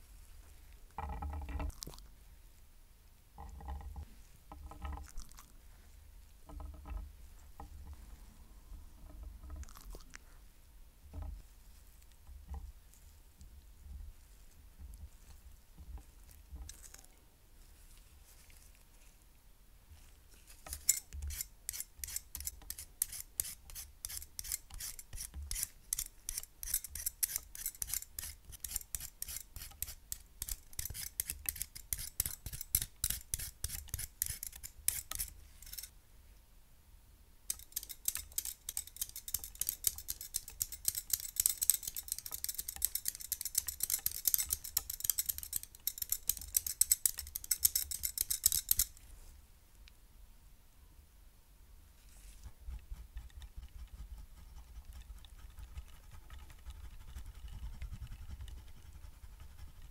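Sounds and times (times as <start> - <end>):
sweet potato being shaved: 20.3 - 35.9, 52.0 - 59.9
cheese rasping on a shaver: 20.7 - 35.9.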